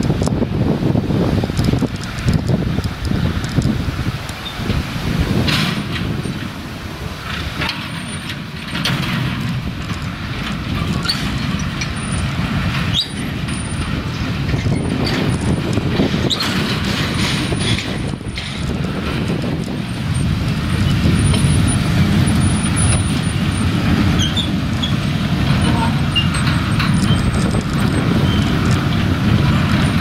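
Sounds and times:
train wagons rumbling on track: 0:00.0 - 0:30.0
wheels and couplings clanking: 0:00.0 - 0:30.0
wheel squeals: 0:04.3 - 0:04.8, 0:07.2 - 0:30.0.

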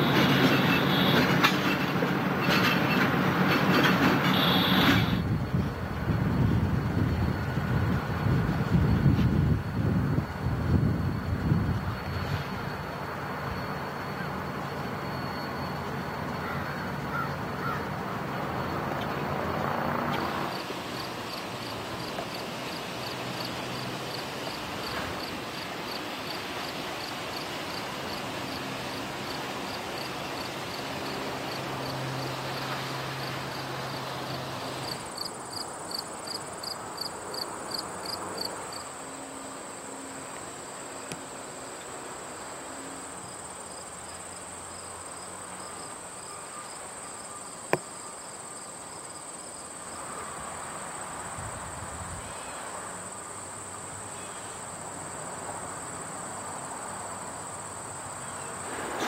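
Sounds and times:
diesel locomotives rumbling: 0:00.0 - 0:45.6
high insect trill: 0:00.0 - 0:59.0
insects chirping: 0:00.0 - 0:59.0.

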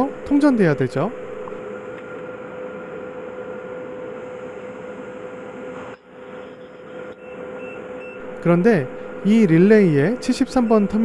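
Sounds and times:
industrial machinery hum: 0:00.0 - 0:11.0.

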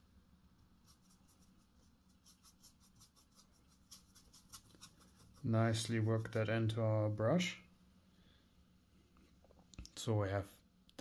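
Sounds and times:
brush scratching on palette: 0:00.7 - 0:07.0.

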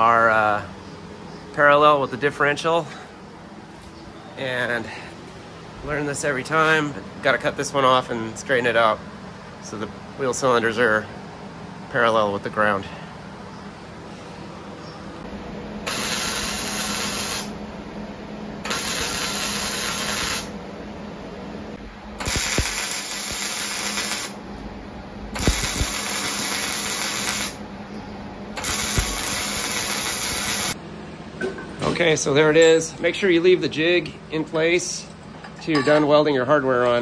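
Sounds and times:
low steady hum: 0:00.0 - 0:37.0
welder arc crackling and sizzling: 0:15.8 - 0:17.6, 0:18.6 - 0:20.6, 0:21.8 - 0:24.4, 0:25.4 - 0:27.6, 0:28.6 - 0:30.8.

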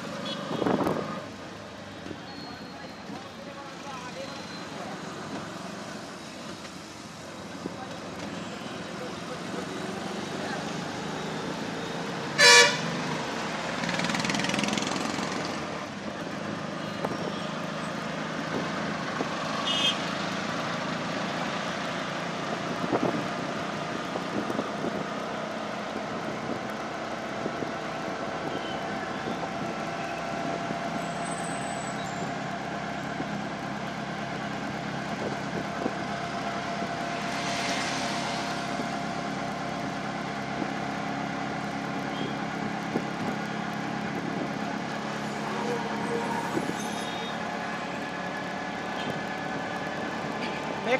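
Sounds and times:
auto-rickshaw engine running: 0:00.0 - 0:50.9
horn honk: 0:00.2 - 0:00.8, 0:12.4 - 0:12.9, 0:19.6 - 0:20.0.

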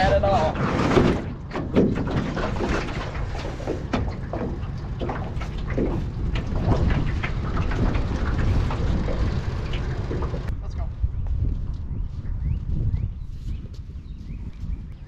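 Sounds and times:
wind rumbling on microphone: 0:00.0 - 0:15.0
water lapping against boat hull: 0:00.2 - 0:10.5.

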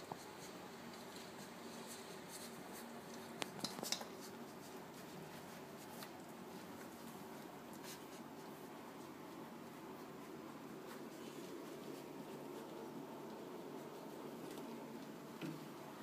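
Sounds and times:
faint steady hum: 0:00.0 - 0:16.0
soft scratching on towel: 0:00.0 - 0:16.0.

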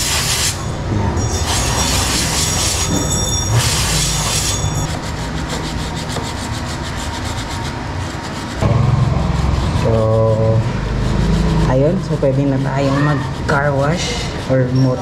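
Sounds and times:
low rumble: 0:08.6 - 0:12.4.

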